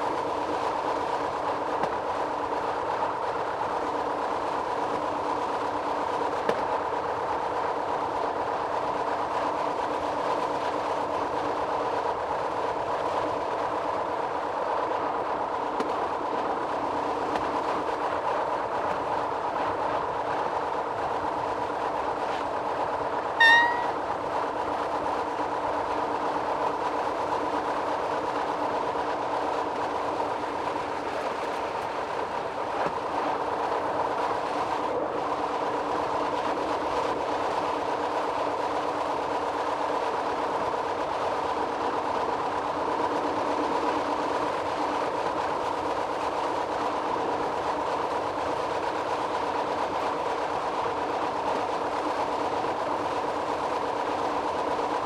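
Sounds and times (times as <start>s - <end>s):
train horn toot: 23.4s - 24.0s.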